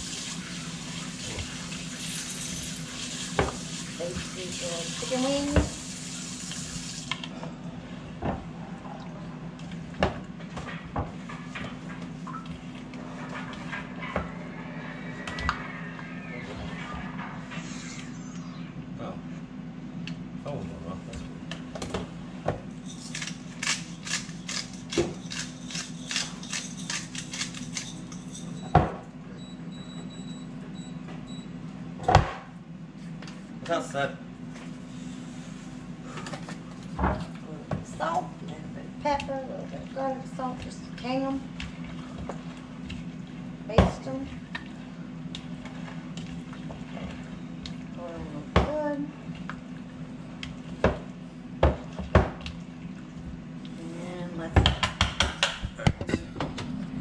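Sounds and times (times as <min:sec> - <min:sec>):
kitchen tap running: 0:00.0 - 0:07.2
steady low hum: 0:00.0 - 0:57.0.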